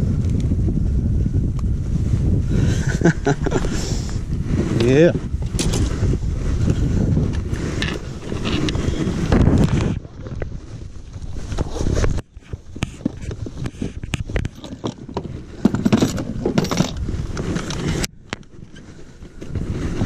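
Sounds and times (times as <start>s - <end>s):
wind rumble on microphone: 0.0s - 20.0s
gear clicking and rustling: 4.7s - 20.0s.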